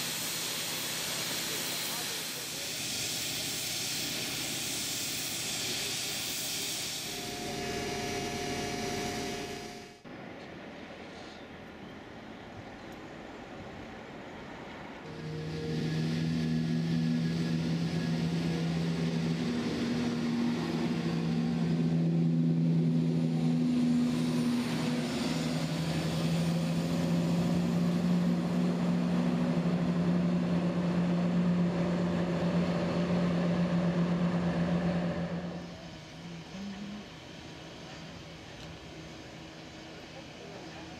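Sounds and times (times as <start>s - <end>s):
hiss: 0.0s - 8.7s
train engines droning: 0.0s - 40.9s.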